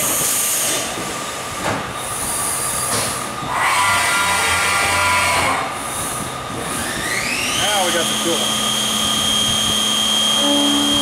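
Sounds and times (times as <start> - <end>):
coolant spray and cutting hiss: 5.1 - 11.0
cutter squealing: 6.8 - 11.0.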